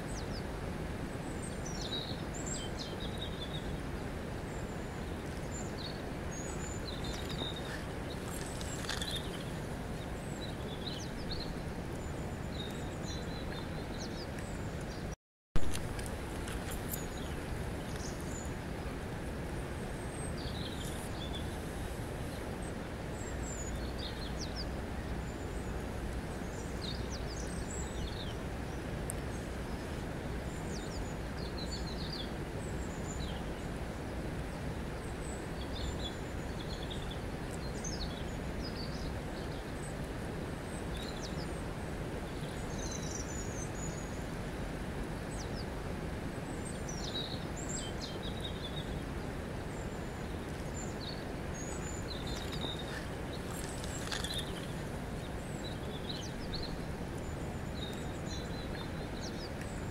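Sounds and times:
small birds chirping: 1.3s - 15.2s, 16.0s - 19.0s, 19.7s - 33.8s, 34.5s - 40.0s, 46.4s - 59.9s
river water rushing: 15.6s - 59.9s.

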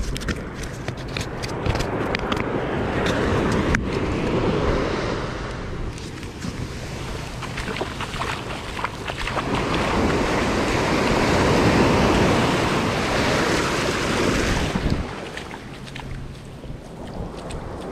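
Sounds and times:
wave breaking on shore: 2.4s - 16.6s.

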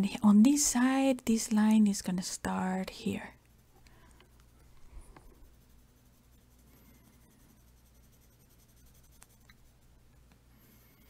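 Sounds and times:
low room hum: 0.0s - 11.0s
pencil scratching on paper: 4.3s - 9.9s.

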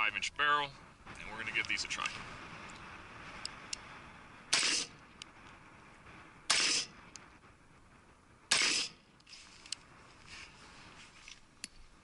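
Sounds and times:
gunshots: 4.4s - 5.1s, 6.4s - 7.1s, 8.5s - 9.1s.

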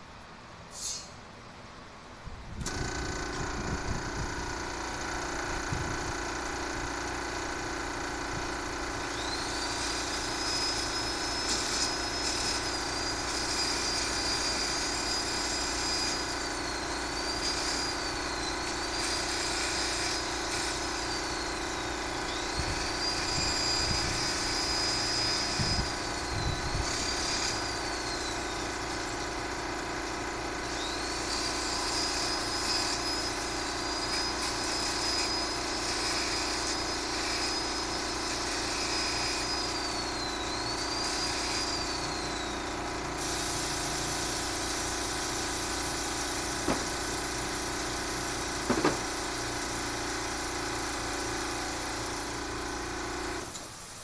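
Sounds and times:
electric drill whining: 2.6s - 53.8s.

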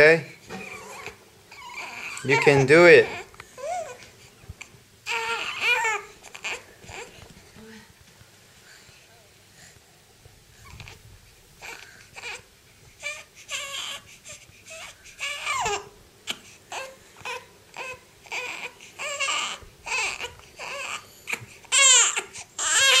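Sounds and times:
infant crying: 0.5s - 4.1s, 5.0s - 7.2s, 11.6s - 12.4s, 13.0s - 23.0s.

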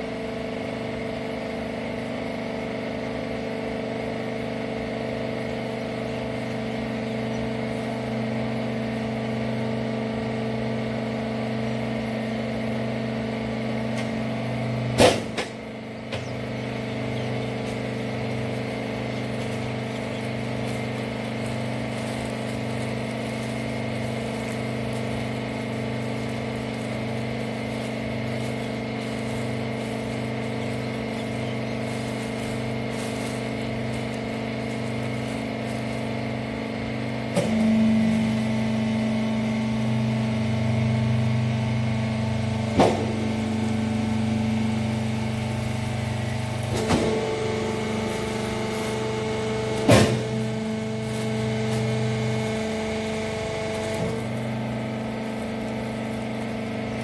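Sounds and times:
hydraulic press hum: 4.1s - 57.0s
sharp clunk: 15.0s - 16.3s, 49.8s - 50.3s.

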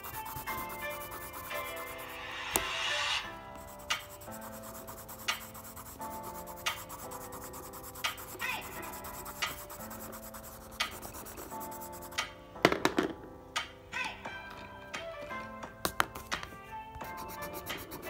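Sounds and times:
pencil scribbling on paper: 0.0s - 2.2s, 3.5s - 12.3s, 17.0s - 18.0s
background music of held notes: 0.0s - 18.0s.

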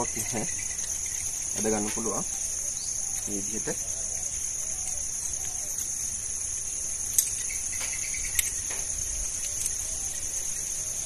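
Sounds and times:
high-pitched insect chorus: 0.0s - 11.0s.

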